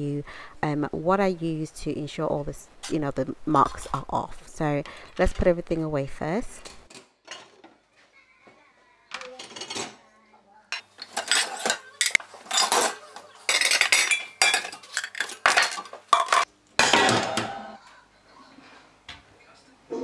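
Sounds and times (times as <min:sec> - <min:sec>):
ceramic dishes clattering in rack: 0:09.4 - 0:10.0, 0:10.8 - 0:17.7.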